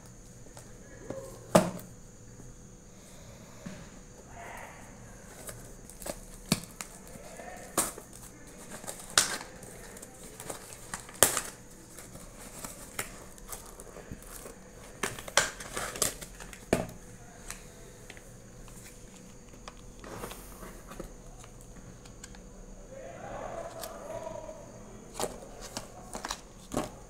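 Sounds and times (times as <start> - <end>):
foil pouch crackling: 5.2 - 16.7.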